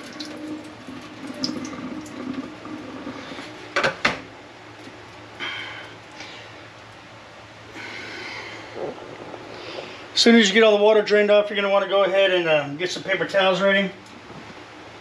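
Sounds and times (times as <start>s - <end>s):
water trickling and splashing: 0.0s - 3.6s.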